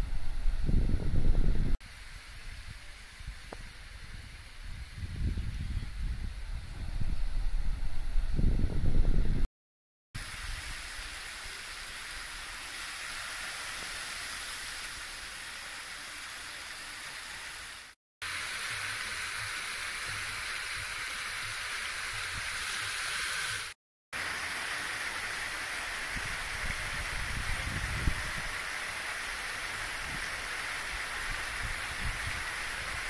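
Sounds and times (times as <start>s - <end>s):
water jets splashing into pool: 10.2s - 33.0s.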